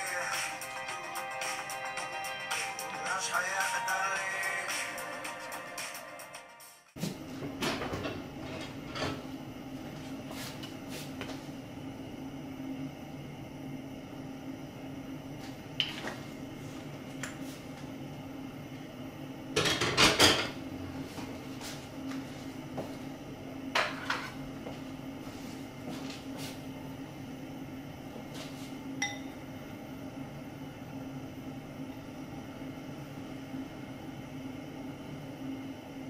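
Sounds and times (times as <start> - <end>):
steady low hum: 7.0 - 36.0.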